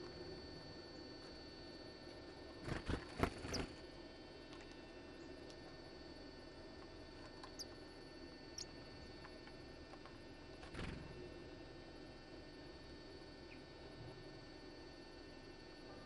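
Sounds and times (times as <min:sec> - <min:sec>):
electrical hum: 0:00.0 - 0:16.0
thin high bird calls: 0:07.4 - 0:07.8.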